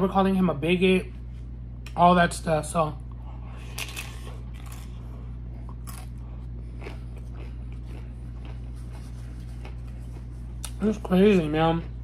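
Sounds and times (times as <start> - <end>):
steady low hum: 0.0 - 12.0
crunchy chewing: 3.5 - 12.0.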